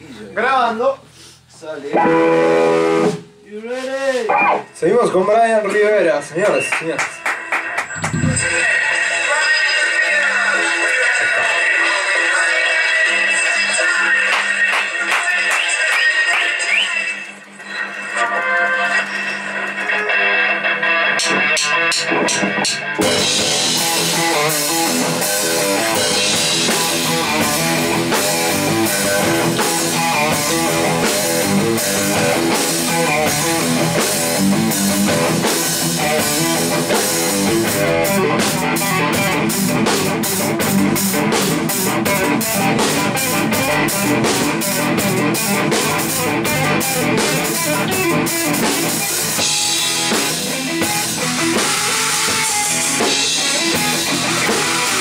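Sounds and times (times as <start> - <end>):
electric bass: 1.9 - 3.3, 23.0 - 55.0
electric guitar: 1.9 - 3.4, 4.1 - 5.0, 5.6 - 55.0
drum kit: 2.0 - 4.8, 5.4 - 9.7, 14.3 - 16.5, 19.0 - 55.0.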